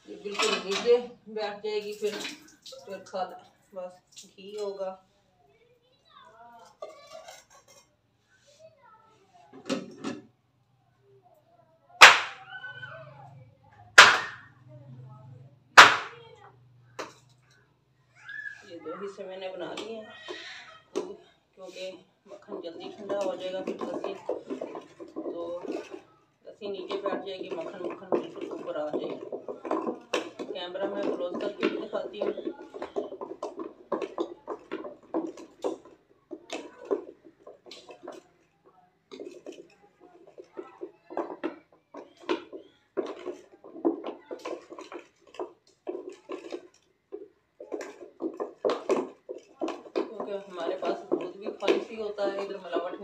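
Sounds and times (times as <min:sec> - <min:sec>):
ice block knocking on ledge: 0:12.0 - 0:12.4, 0:14.0 - 0:14.4, 0:15.8 - 0:16.1
stick knocking on pot: 0:12.0 - 0:12.4, 0:14.0 - 0:14.4, 0:15.8 - 0:16.2, 0:26.8 - 0:38.2, 0:39.1 - 0:53.0.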